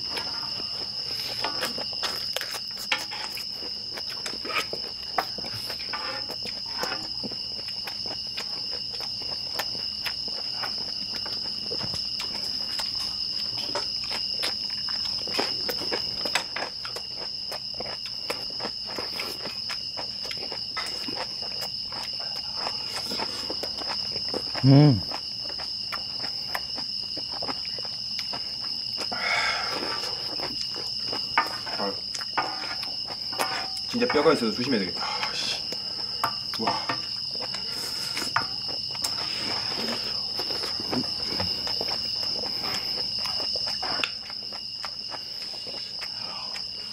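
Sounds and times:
crickets chirring: 0.0 - 46.9
wooden spoons scraping griddle pan: 2.9 - 3.4, 5.8 - 7.1, 32.4 - 32.8, 33.4 - 34.2.

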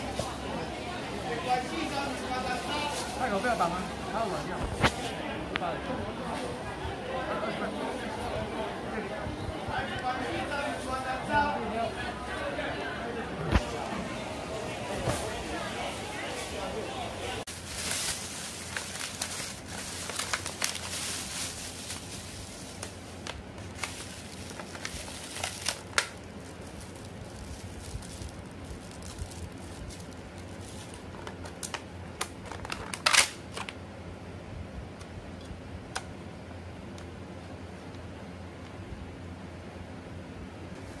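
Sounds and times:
plastic bag crinkling: 17.4 - 33.2.

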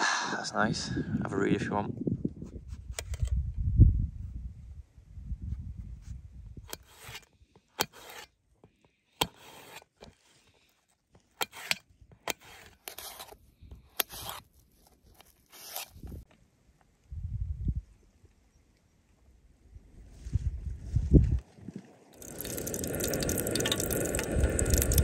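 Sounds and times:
knife cutting apple: 6.7 - 8.4, 9.2 - 10.2, 11.3 - 16.2.

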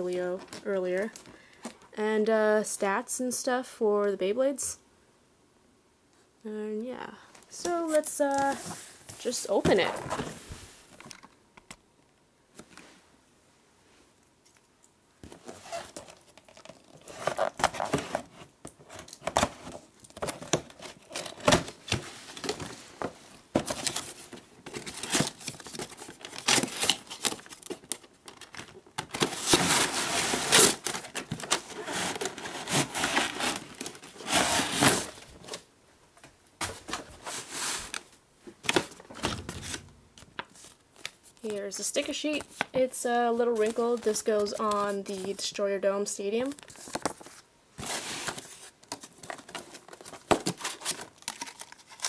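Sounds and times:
cardboard rustling and scraping: 7.6 - 11.0, 15.2 - 35.6, 36.6 - 41.6.

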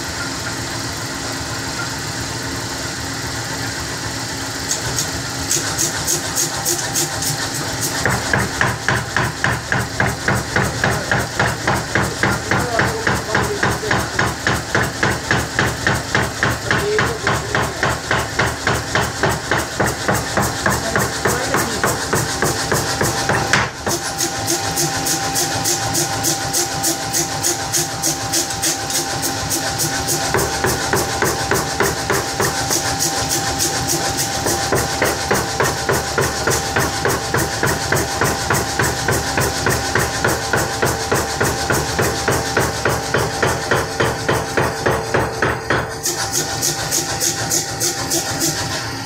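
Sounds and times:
machine running hum: 0.0 - 49.0
power hammer blows on anvil: 29.6 - 48.6.

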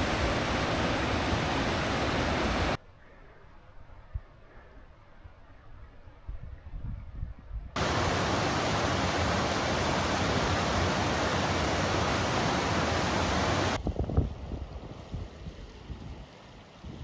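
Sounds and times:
creek water rushing: 0.0 - 2.8, 7.8 - 13.8.

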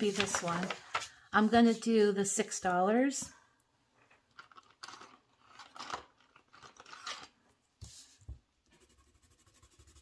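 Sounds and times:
paper rustling and scraping: 0.0 - 2.0.

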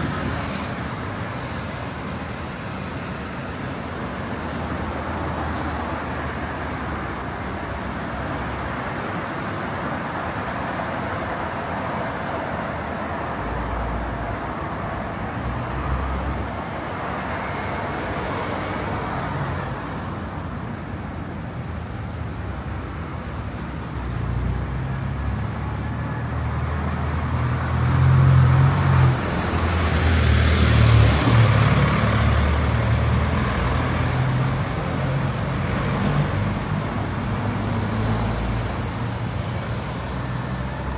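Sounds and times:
city street traffic: 0.0 - 40.9
vehicle passing close by: 26.8 - 38.7.

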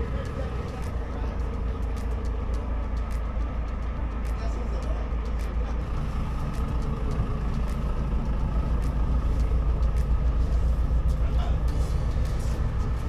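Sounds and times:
engine droning: 0.0 - 13.0.

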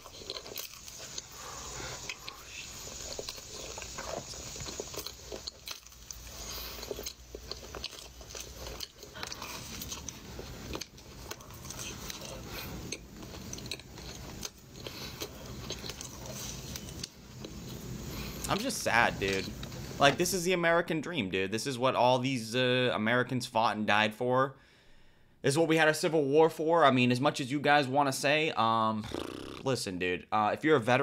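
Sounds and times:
person chewing and biting: 0.0 - 17.6, 29.0 - 29.7
mouth clicks: 29.0 - 29.7.

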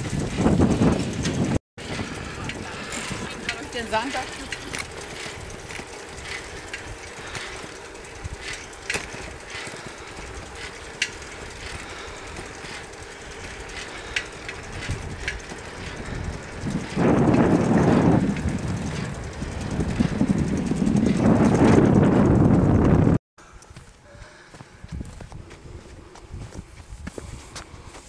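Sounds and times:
bicycle tyres rushing on road: 0.0 - 23.2
bicycle clicks and rattles: 0.0 - 23.8
wind gust on microphone: 16.0 - 23.2.

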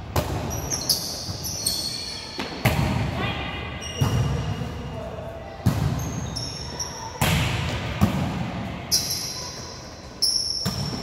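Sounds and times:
sneakers squeaking on court: 0.2 - 4.9, 5.6 - 11.0
volleyball hits echoing: 2.3 - 3.2, 7.2 - 9.0, 10.6 - 11.0.

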